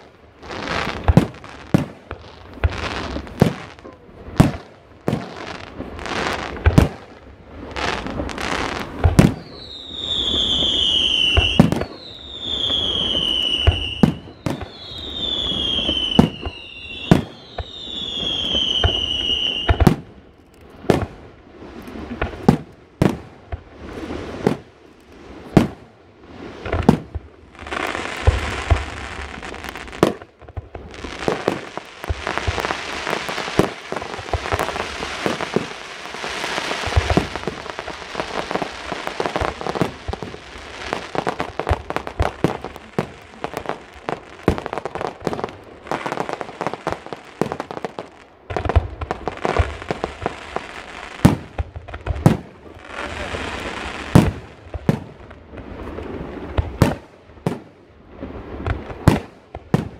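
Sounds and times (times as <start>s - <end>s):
dense firework crackling: 0.0s - 59.9s
firework bangs: 0.0s - 59.9s
firework whistles falling in pitch: 9.0s - 20.0s.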